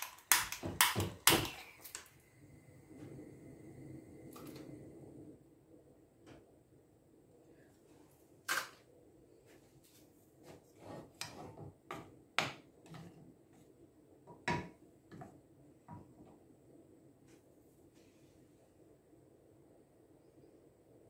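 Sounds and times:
chocolate chunks clacking in pot: 0:00.0 - 0:01.6
spoon scraping pot: 0:10.4 - 0:12.0.

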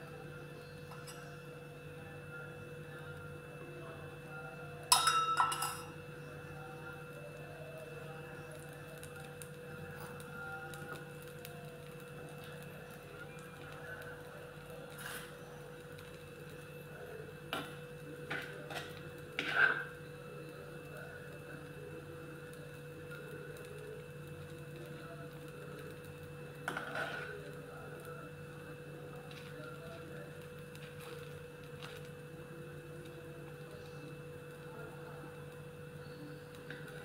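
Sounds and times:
low kitchen hum: 0:00.0 - 0:37.0
spoon clinking on cookware: 0:04.9 - 0:05.9.

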